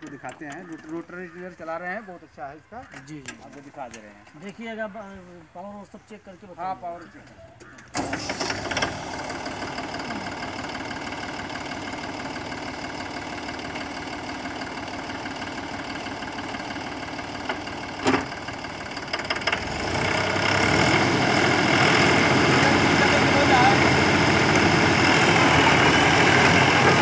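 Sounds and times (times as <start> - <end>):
tractor diesel engine idling: 7.9 - 27.0.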